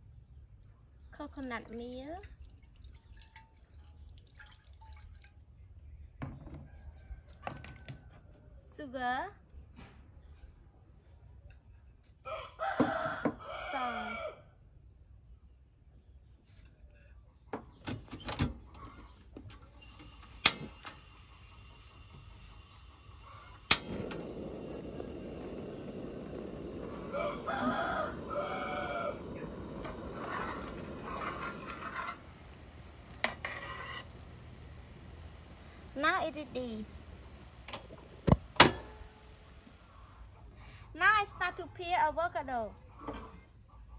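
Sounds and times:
rooster crowing: 0:12.2 - 0:14.5, 0:24.2 - 0:32.3
steady hiss: 0:19.9 - 0:41.1.

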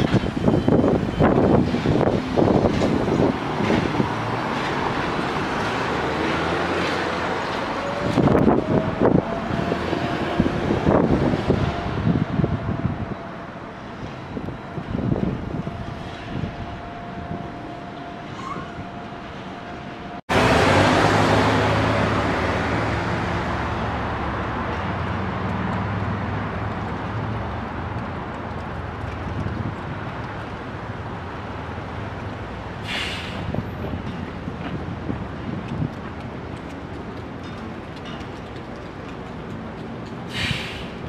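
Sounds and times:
rush of vehicle noise: 0:00.0 - 0:41.0
short hiss: 0:32.8 - 0:33.4, 0:40.3 - 0:41.0.

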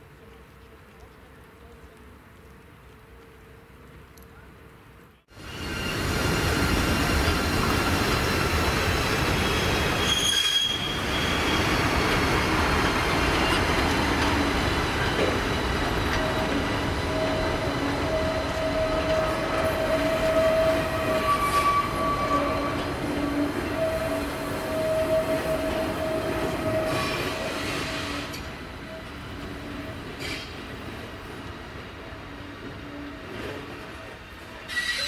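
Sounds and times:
train wheels rumbling over rails: 0:05.3 - 0:34.6
wheels squealing on track: 0:05.4 - 0:12.5, 0:16.0 - 0:28.4, 0:34.6 - 0:35.0.

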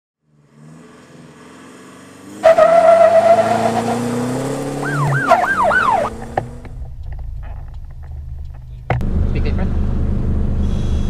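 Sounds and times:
diesel engine accelerating: 0:00.2 - 0:11.0
turbo whine: 0:08.3 - 0:11.0.

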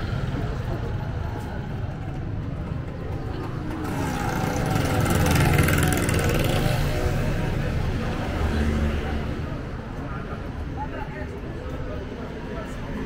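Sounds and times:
vehicle passing by: 0:03.5 - 0:09.6.

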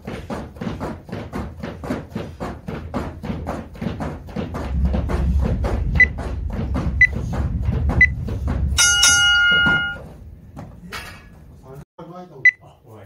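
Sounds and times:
battle ropes slapping mat: 0:00.0 - 0:10.8
low rumble: 0:04.4 - 0:10.6
interval timer beeps: 0:08.8 - 0:10.0.

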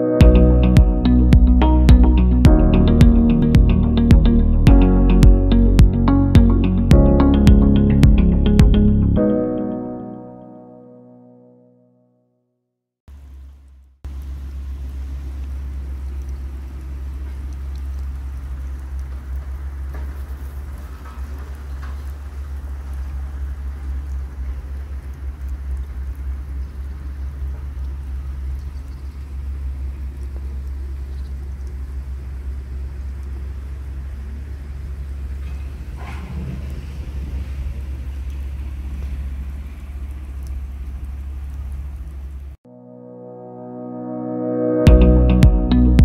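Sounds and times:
wind buffeting microphone: 0:34.1 - 0:40.8.

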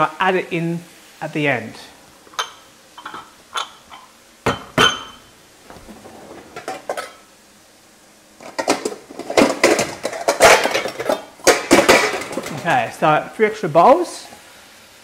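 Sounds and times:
metal bowls clattering: 0:02.3 - 0:07.2, 0:08.4 - 0:12.7.

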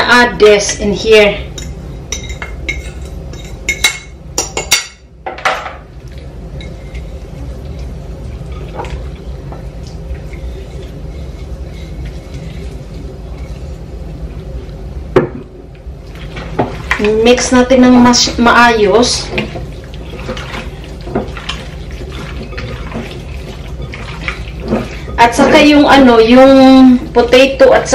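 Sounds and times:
steady low hum: 0:00.0 - 0:27.9
bowl clinking against glass bowl: 0:01.6 - 0:05.0.

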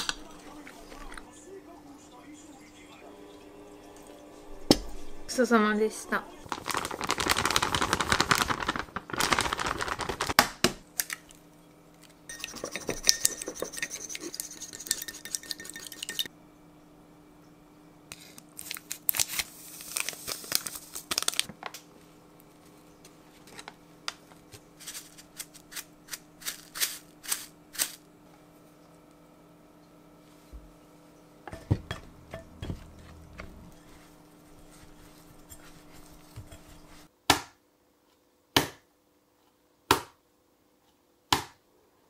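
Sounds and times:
plastic bag rustling: 0:06.4 - 0:10.4, 0:18.2 - 0:21.7, 0:24.5 - 0:28.1, 0:32.7 - 0:37.1.

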